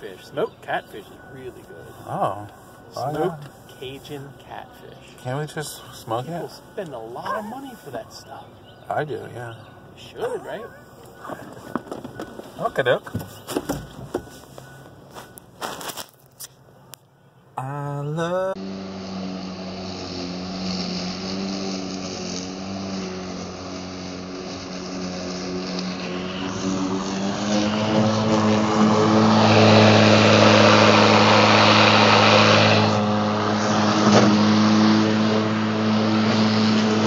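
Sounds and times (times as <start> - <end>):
lawn mower motor hum: 18.6 - 37.0
mower blade cutting grass: 18.6 - 37.0.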